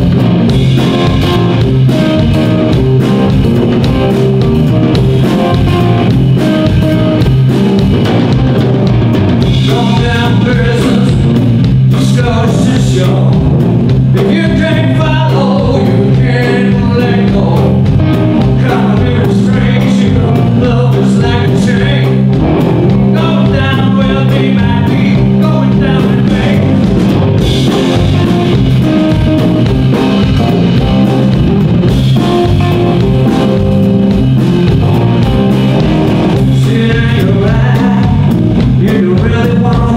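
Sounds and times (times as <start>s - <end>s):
drum kit: 0.0s - 39.9s
electric guitars: 0.0s - 39.9s
man singing: 9.4s - 28.6s, 36.3s - 39.9s.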